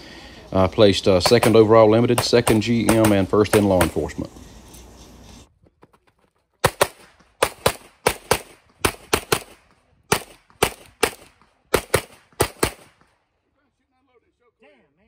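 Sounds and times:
pistol shots in pairs: 0:01.1 - 0:04.2, 0:06.6 - 0:13.1.

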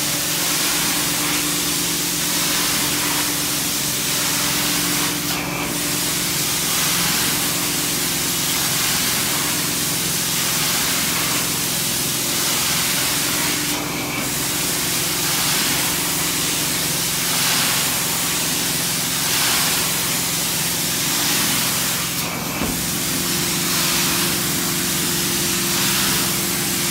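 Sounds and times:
carpet cleaner spray hiss: 0:12.4 - 0:26.9.

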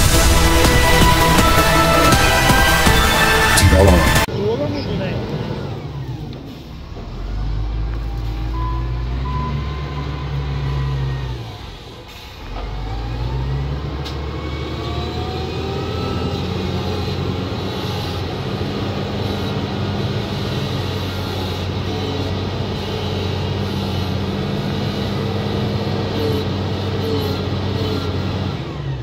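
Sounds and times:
wheel loader diesel engine: 0:00.0 - 0:29.0
whining tones: 0:00.0 - 0:29.0.

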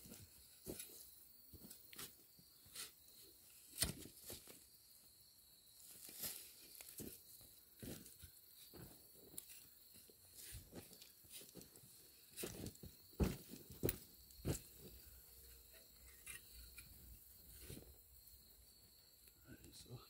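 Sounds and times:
louder crunches and knocks: 0:12.4 - 0:14.9.

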